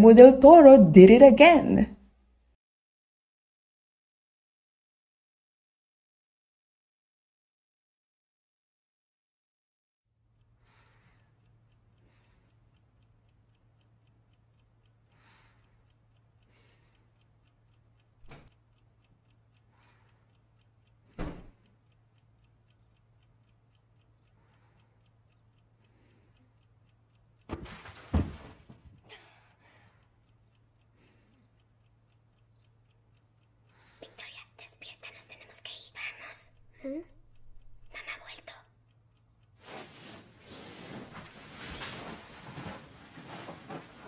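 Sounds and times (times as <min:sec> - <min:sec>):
clock ticking: 0:10.2 - 0:40.3
rustling: 0:39.6 - 0:44.0.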